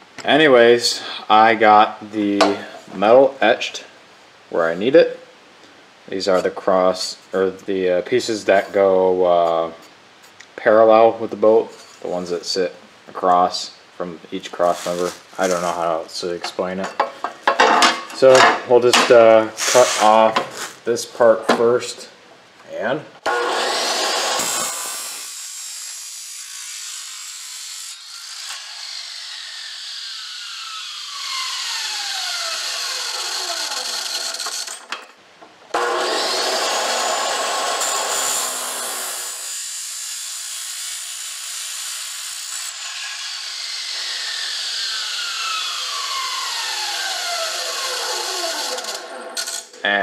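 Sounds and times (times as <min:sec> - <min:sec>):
chop saw cutting metal: 0:23.2 - 0:35.0, 0:35.7 - 0:49.7.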